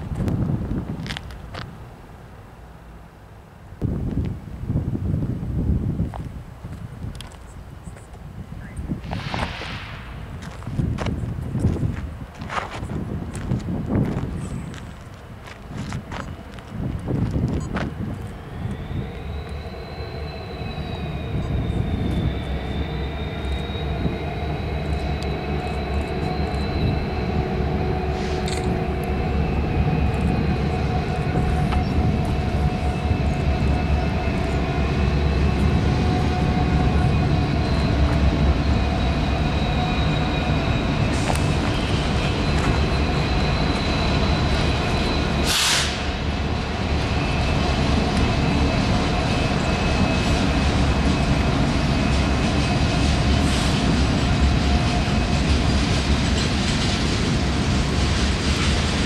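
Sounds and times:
diesel locomotive engine rumble: 0.0 - 59.0
brief hiss: 9.0 - 10.3, 45.4 - 46.1
freight cars rolling by: 9.0 - 59.0.

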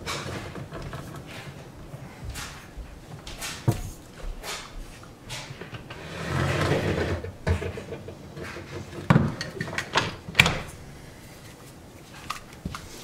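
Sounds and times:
dishwasher scraping slide: 5.3 - 10.6.

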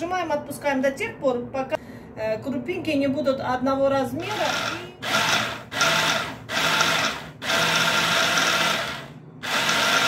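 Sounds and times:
hand blender chopping: 4.2 - 10.0.

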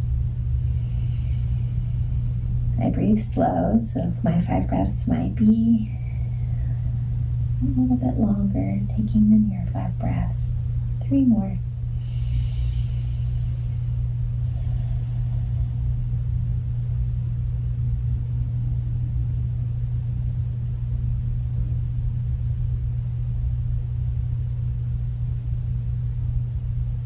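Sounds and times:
steady low rumble: 0.0 - 27.0.

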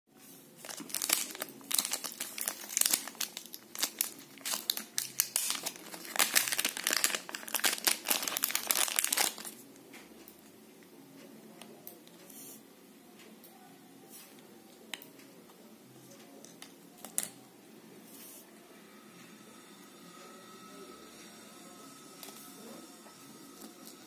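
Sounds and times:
plastic bag crinkling: 0.6 - 9.6.

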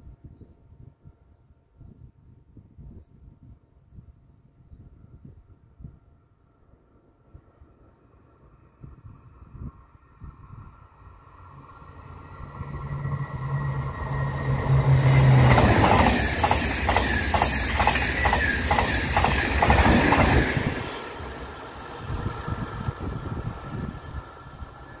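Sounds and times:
high-speed train passing: 6.9 - 25.0.

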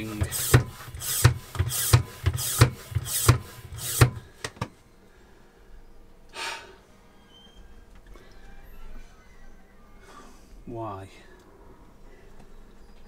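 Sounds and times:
hand pump rasping strokes: 0.0 - 4.2.

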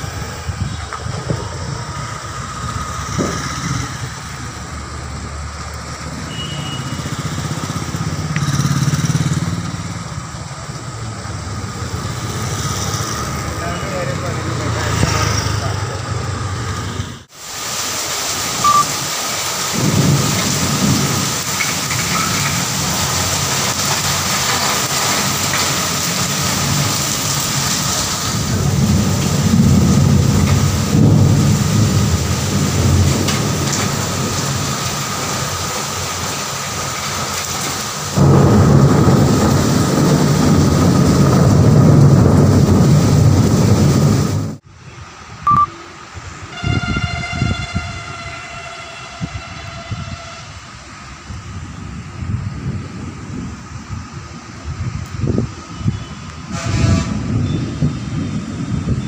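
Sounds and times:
heavy rain pouring: 0.0 - 59.0
thunder rumbling: 17.7 - 44.7.

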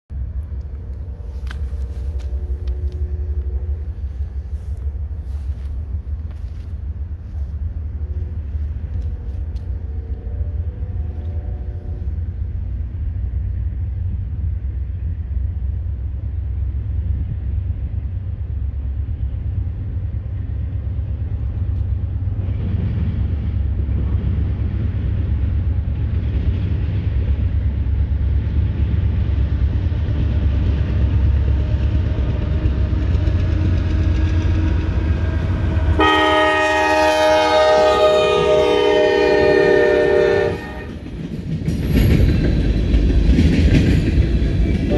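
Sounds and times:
diesel locomotives rumbling: 0.1 - 44.9
distant multi-tone horn: 0.6 - 5.5, 7.9 - 12.4, 32.8 - 41.1.

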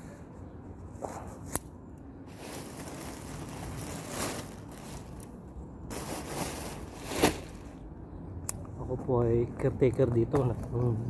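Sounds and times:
rustling of cut grass: 2.3 - 7.8.

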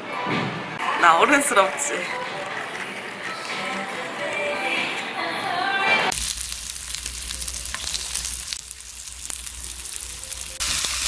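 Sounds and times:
meat sizzling on grill pan: 6.1 - 11.0.

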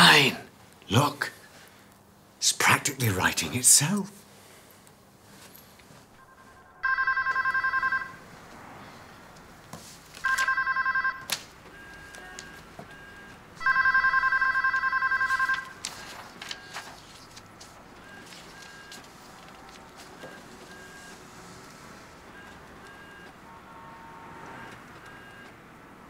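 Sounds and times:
telephone ringing with warbling trill: 6.2 - 8.2, 10.3 - 11.2, 13.1 - 15.8.

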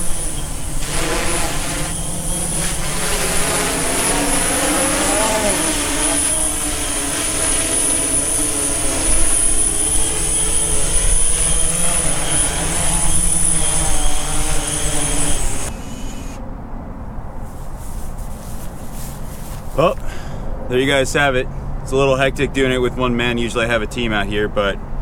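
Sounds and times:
drone rotors humming and whining: 0.0 - 16.5.

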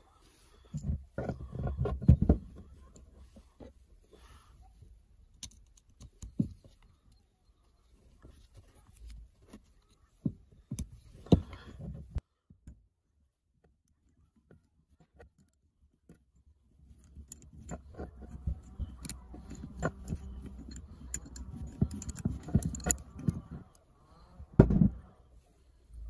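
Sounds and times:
screwdriver scraping in metal threads: 16.9 - 23.8
metal parts knocking: 17.1 - 23.8.

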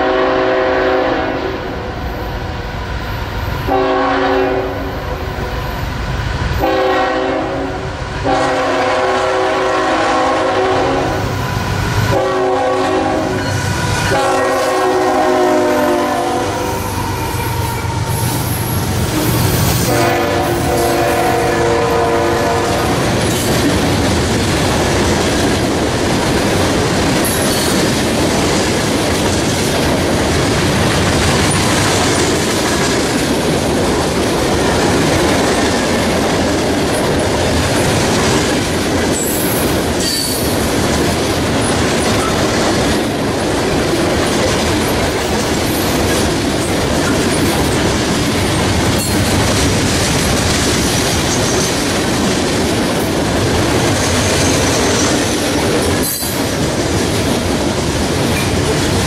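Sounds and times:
train wheels rumbling on rails: 0.0 - 59.0
high wheel squeals: 13.4 - 14.2, 16.6 - 19.9.

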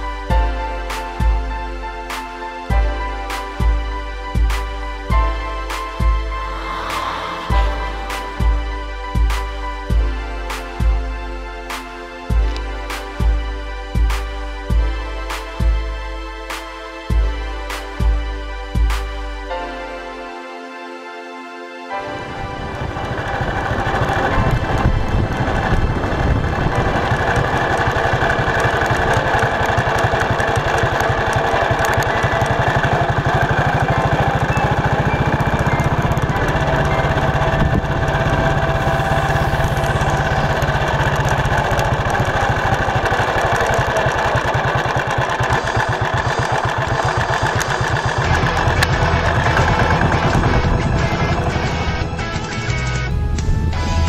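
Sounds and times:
motorcycle engine running: 0.0 - 1.9, 2.7 - 11.2, 22.5 - 54.0
bike rolling over cobblestones: 22.8 - 53.2.

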